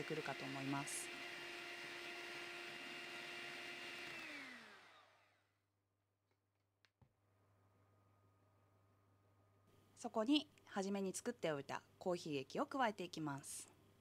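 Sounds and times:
electric hand mixer whining: 0.0 - 5.6.

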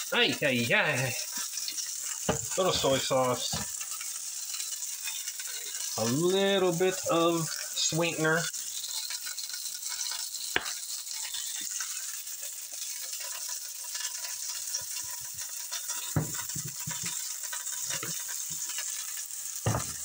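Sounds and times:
chicken sizzling in a skillet: 0.0 - 20.0
soft knocks of bottles and bowl: 16.2 - 17.1, 19.7 - 20.0.

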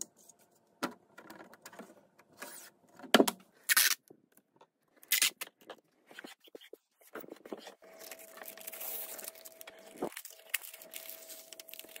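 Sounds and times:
tape ripping: 3.7 - 4.0, 5.0 - 5.5
paper crinkling: 6.1 - 12.0.

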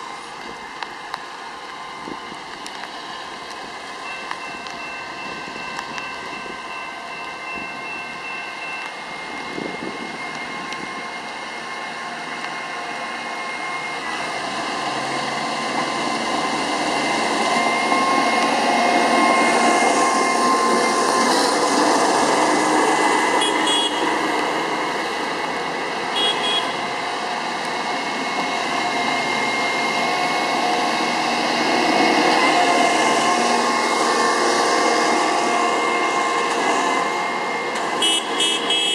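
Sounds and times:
diesel engines running: 0.0 - 38.9.

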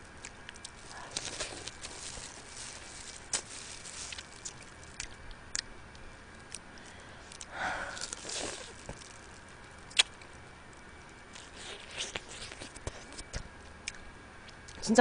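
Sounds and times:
wet eating mouth sounds: 7.3 - 10.3, 11.3 - 14.0.

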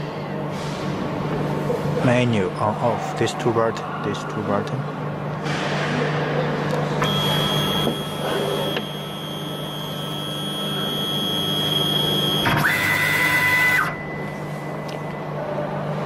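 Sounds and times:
steady low hum: 0.0 - 16.0
stepper motors whining: 7.0 - 14.1.

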